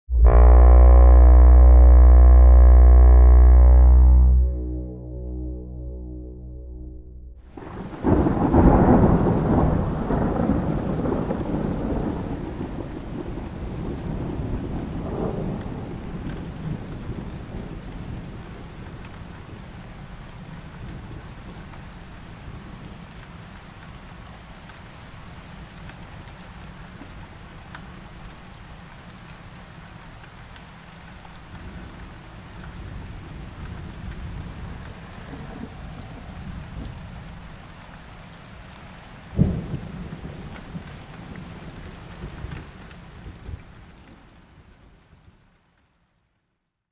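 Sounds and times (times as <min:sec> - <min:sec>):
thunder rumbling: 0:04.2 - 0:19.6, 0:32.7 - 0:37.8, 0:39.3 - 0:43.7
steady rain: 0:07.4 - 0:46.9.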